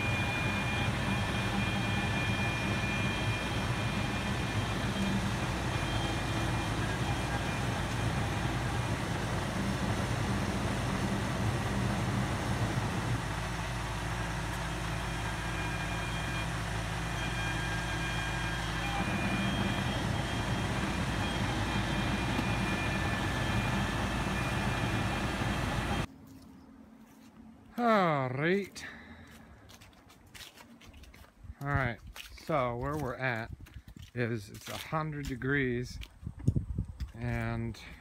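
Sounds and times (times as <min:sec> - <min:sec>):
truck engine running: 0:00.0 - 0:26.1.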